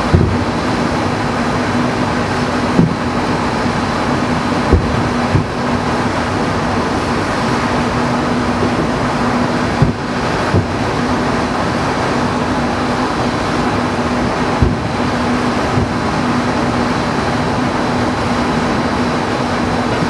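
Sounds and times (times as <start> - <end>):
distant fireworks booms: 0.0 - 0.8, 2.7 - 3.3, 4.6 - 5.9, 8.1 - 11.0, 14.4 - 16.2
low hum: 0.0 - 20.0
rushing background noise: 0.0 - 20.0.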